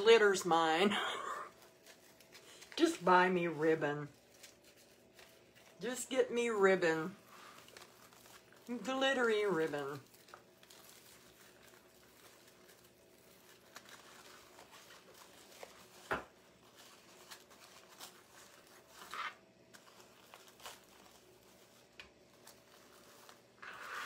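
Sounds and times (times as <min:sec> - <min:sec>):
ribbon rustling and crinkling: 0:00.0 - 0:24.0.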